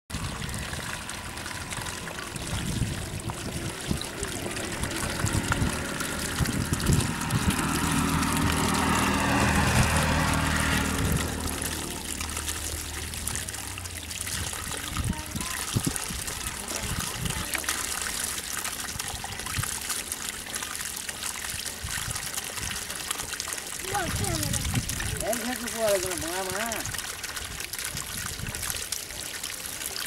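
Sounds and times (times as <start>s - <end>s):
low hum: 0.1s - 14.9s
water trickling: 0.1s - 30.0s.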